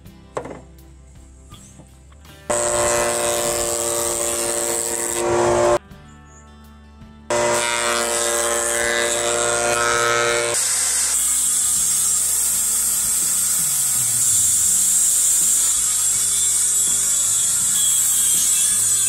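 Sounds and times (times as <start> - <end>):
circular saw cutting wood: 2.5 - 5.8, 7.3 - 19.0.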